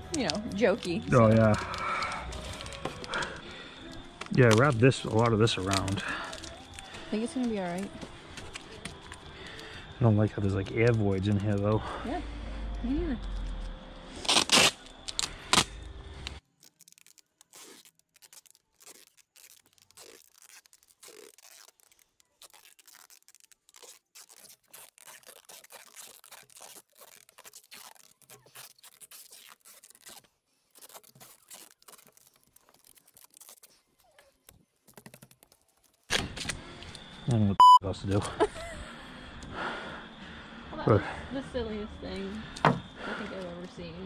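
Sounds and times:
tape crackling and peeling: 0:00.0 - 0:37.1
packing tape ripping: 0:00.1 - 0:09.6, 0:13.2 - 0:36.6.

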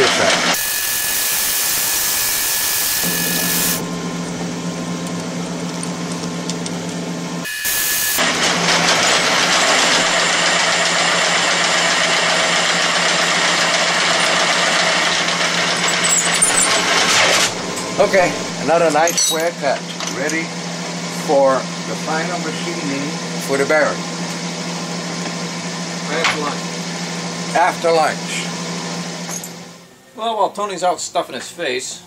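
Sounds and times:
metal lathe humming: 0:00.0 - 0:19.6
high hissing cutting noise: 0:00.6 - 0:03.9, 0:07.4 - 0:08.2.

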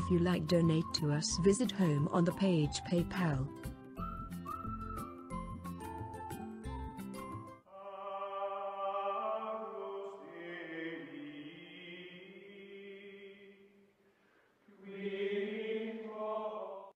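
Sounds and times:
slow choral chant: 0:07.7 - 0:13.8, 0:14.7 - 0:16.9.

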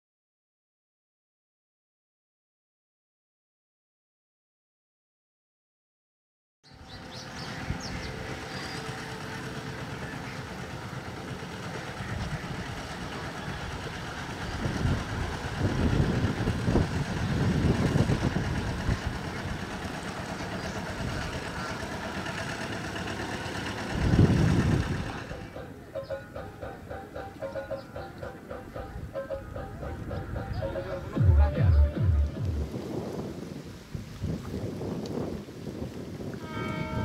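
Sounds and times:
boat engine running: 0:06.7 - 0:33.7, 0:34.4 - 0:37.0.

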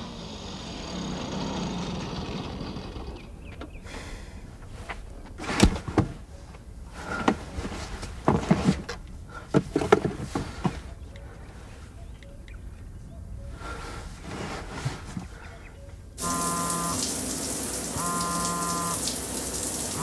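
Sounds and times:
rustling: 0:04.5 - 0:12.0, 0:14.0 - 0:15.5
knocks and clicks of handling: 0:08.0 - 0:11.3.

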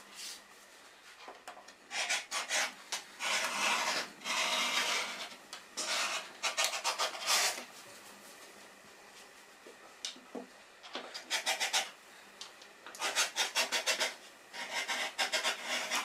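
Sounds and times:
rotary cutter cutting fabric: 0:01.9 - 0:07.6, 0:13.0 - 0:16.0.

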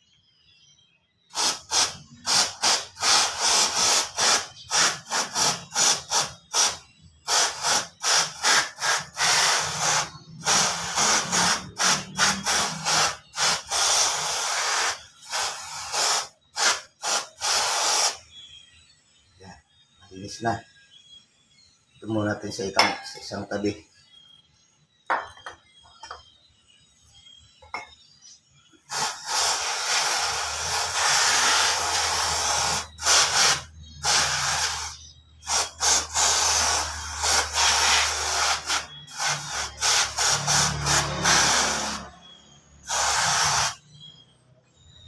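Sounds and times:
aerosol spray hissing: 0:01.3 - 0:18.3, 0:28.8 - 0:42.1, 0:42.8 - 0:44.0.

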